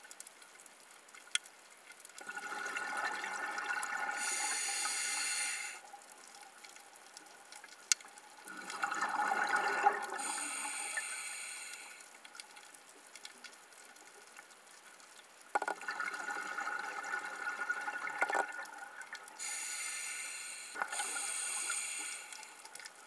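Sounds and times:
diver breathing through regulator: 4.2 - 5.8, 10.2 - 12.0, 19.4 - 22.6.

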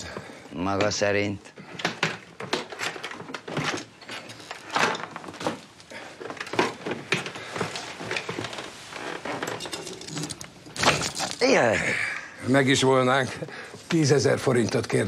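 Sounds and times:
metal tools clinking in toolbox: 9.2 - 11.5.

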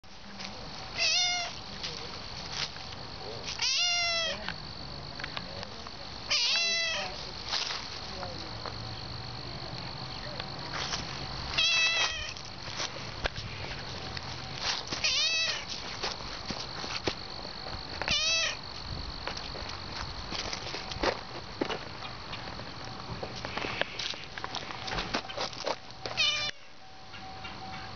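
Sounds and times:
cat meowing: 1.0 - 1.6, 3.6 - 4.5, 6.3 - 7.2, 11.5 - 12.4, 15.0 - 15.7, 18.1 - 18.6, 26.2 - 26.7.

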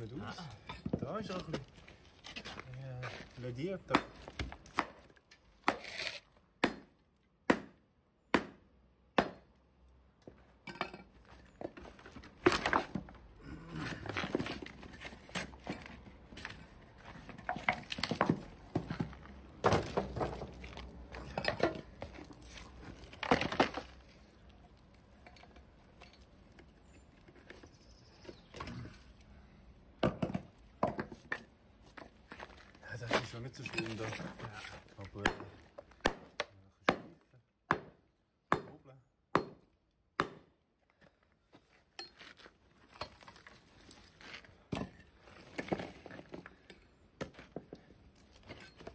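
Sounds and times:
broken concrete crumbling and rattling: 10.6 - 27.7
hammer knocking on concrete: 35.2 - 40.5.

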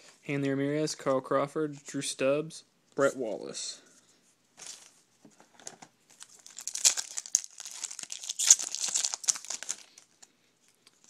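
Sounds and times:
foil wrapper crinkling and tearing: 6.1 - 11.0.

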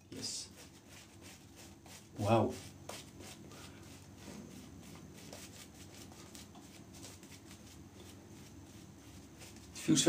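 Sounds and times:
shaving brush strokes on face: 0.2 - 10.0.

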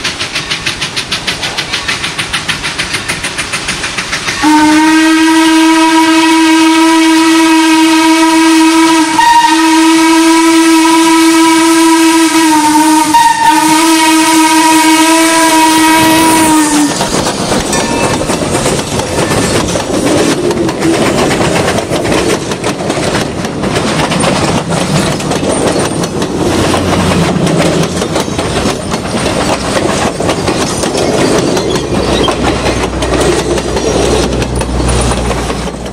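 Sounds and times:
train wheels clicking over rail joints: 0.0 - 6.4, 12.4 - 35.9
steam locomotive whistle blast: 4.2 - 17.0.

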